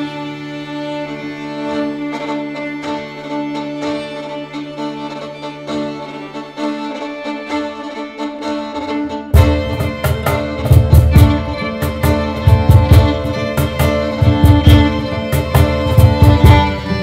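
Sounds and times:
bowed violin melody: 0.0s - 17.0s
held low string note: 8.9s - 17.0s.

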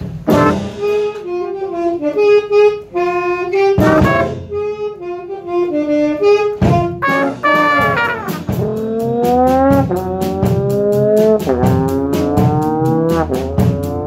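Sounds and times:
trombone playing jazz solo: 0.1s - 14.0s.

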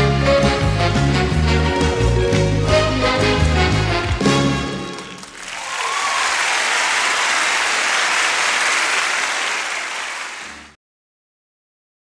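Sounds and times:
audience applauding: 4.0s - 10.8s.

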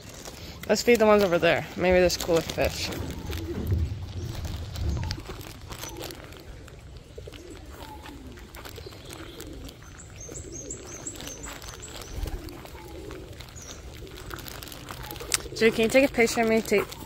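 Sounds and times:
pigeons cooing: 0.0s - 17.0s
small bird chirping: 7.4s - 17.0s.

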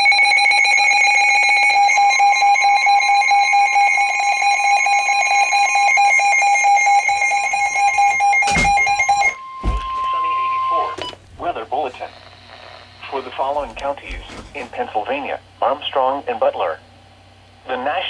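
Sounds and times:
high-pitched alarm tone: 0.0s - 11.0s
steady lower warning tone: 0.0s - 14.9s.

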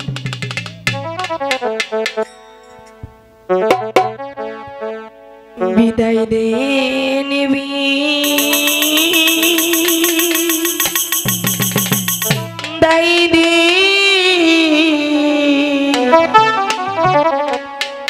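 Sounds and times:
jingling percussion rhythm: 0.0s - 4.2s, 8.2s - 13.3s
instrumental chords: 0.0s - 5.8s, 8.2s - 13.2s
woman singing with vibrato: 5.6s - 11.3s, 12.5s - 16.7s.

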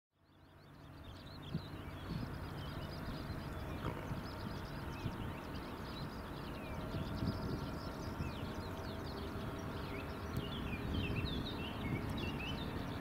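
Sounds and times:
small birds chirping: 0.2s - 13.0s
distant jet engines rumbling: 0.4s - 13.0s.

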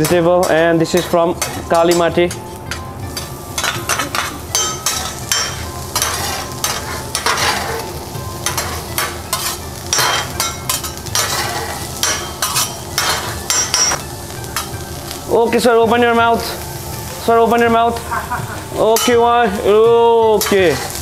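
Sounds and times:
metal spatulas clacking on griddle: 0.0s - 7.8s, 8.4s - 14.0s
vegetables sizzling on a griddle: 0.0s - 21.0s.

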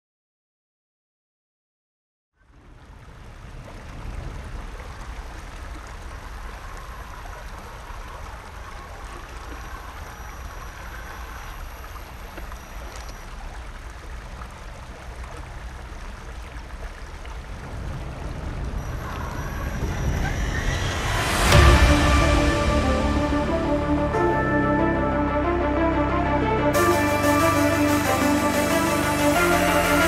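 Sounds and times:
flowing creek rushing: 2.5s - 30.0s
low rumble: 14.2s - 30.0s.

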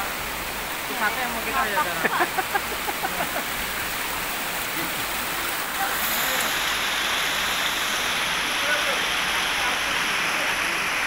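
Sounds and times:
stream running over rocks: 0.0s - 11.0s
waterfall rushing: 0.0s - 11.0s
voices: 0.8s - 3.6s.

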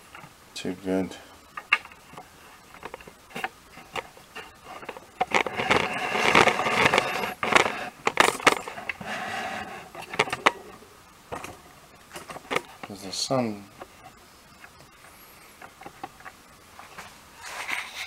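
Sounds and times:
handling clicks and knocks: 1.5s - 9.0s
rubbing and rustling: 1.5s - 18.0s.

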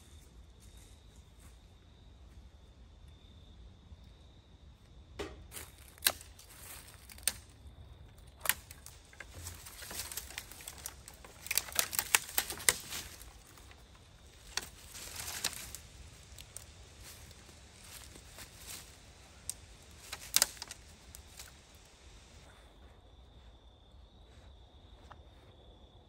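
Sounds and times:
rustling: 8.4s - 23.0s
sharp clicks and snaps: 19.5s - 21.6s.

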